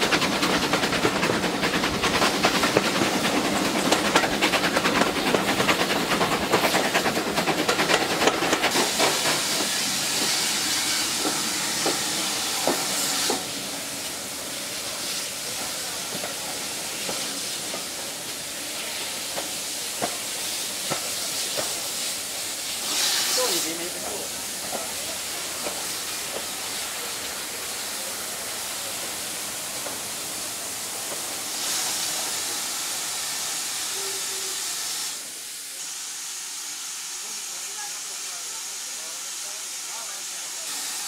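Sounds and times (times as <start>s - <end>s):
train wheels clattering on rails: 0.0s - 32.5s
steam hissing: 0.0s - 41.0s.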